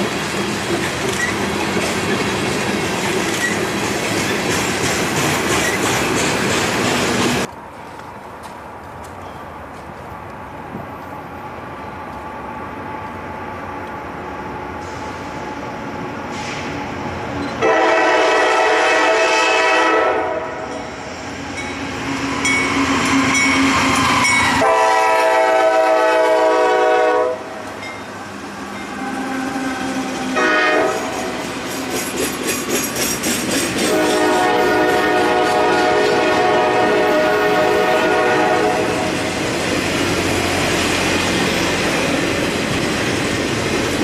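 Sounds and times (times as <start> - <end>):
train wheels clicking over rail joints: 0.0 - 11.2, 27.6 - 36.3
diesel locomotive rumble: 0.0 - 44.0
train horn blasts: 17.6 - 20.9, 22.5 - 27.7, 28.6 - 31.4, 33.9 - 39.2.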